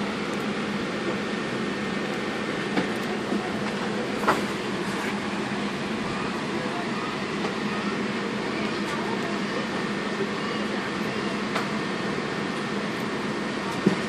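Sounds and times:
low steady drone: 0:00.0 - 0:13.8.

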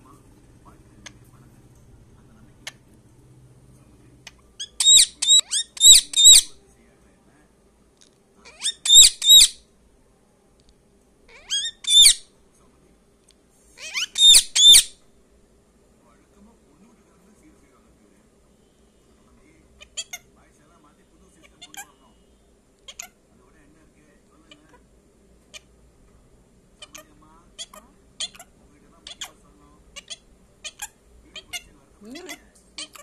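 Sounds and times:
parakeet high-pitched calls: 0:04.2 - 0:06.6, 0:08.4 - 0:09.6, 0:11.3 - 0:12.3, 0:13.8 - 0:15.0, 0:19.8 - 0:20.3, 0:21.4 - 0:22.0, 0:22.8 - 0:23.2, 0:25.5 - 0:25.7, 0:26.8 - 0:33.0.

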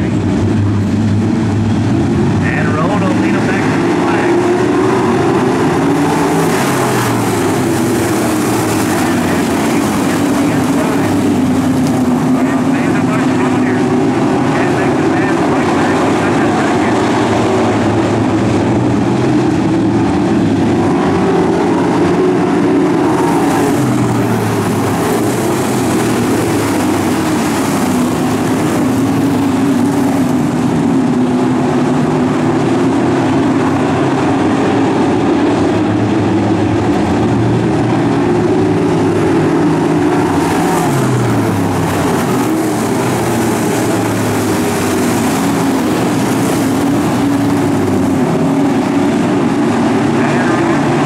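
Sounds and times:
race car engines at speed: 0:00.0 - 0:51.0.

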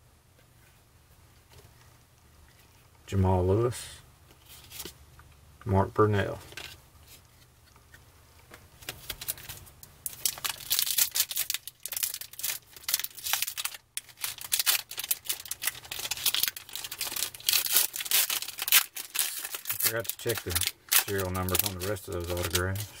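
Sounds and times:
foil wrapper crackling: 0:08.8 - 0:23.0.

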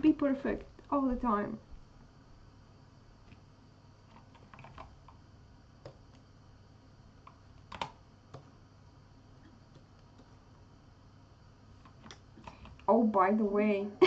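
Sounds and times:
faint low hum: 0:00.0 - 0:14.0
keyboard and mouse clicks: 0:04.1 - 0:05.2, 0:05.8 - 0:06.2, 0:07.2 - 0:08.5, 0:11.8 - 0:12.9.

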